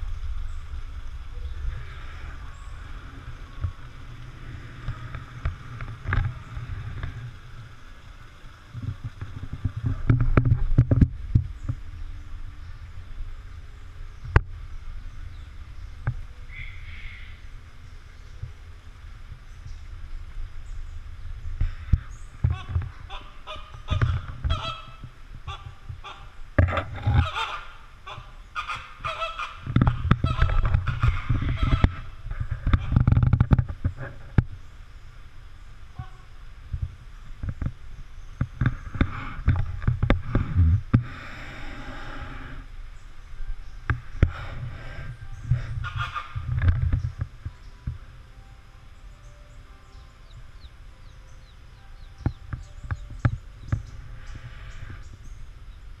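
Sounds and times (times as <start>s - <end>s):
low rumble: 0.0s - 56.0s
flamingos honking: 21.6s - 34.2s, 35.9s - 36.5s, 38.9s - 55.6s.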